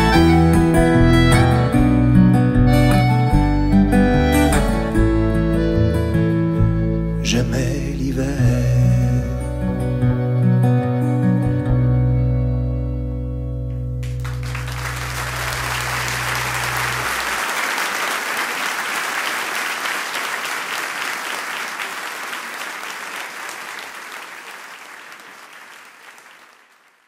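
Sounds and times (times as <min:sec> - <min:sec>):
audience applauding: 0:14.0 - 0:27.0.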